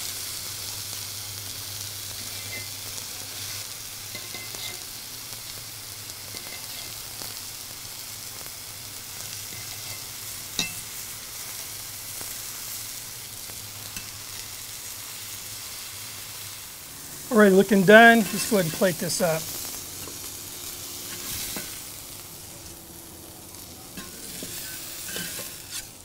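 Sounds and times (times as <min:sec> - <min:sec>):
steak sizzling on griddle: 0:00.0 - 0:26.0
knife and fork clicking on griddle: 0:24.0 - 0:25.9.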